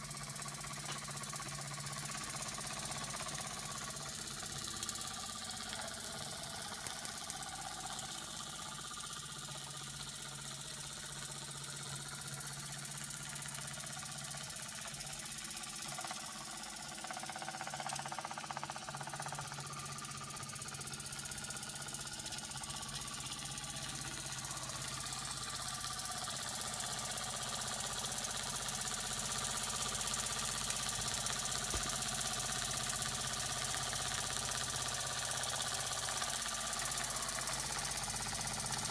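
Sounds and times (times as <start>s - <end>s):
toy steam engine clattering: 0.0s - 20.4s.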